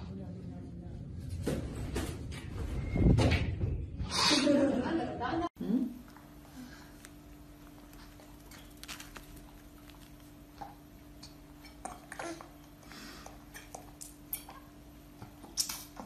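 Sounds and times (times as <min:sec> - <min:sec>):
steady low hum: 0:05.3 - 0:16.0.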